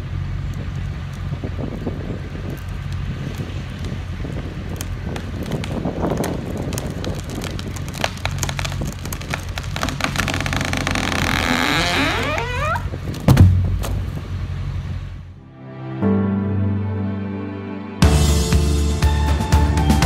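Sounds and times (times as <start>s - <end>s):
wood cracking and creaking: 0.0s - 14.3s
tree groaning: 0.0s - 15.4s
heavy thud of trunk hitting ground: 13.1s - 14.2s.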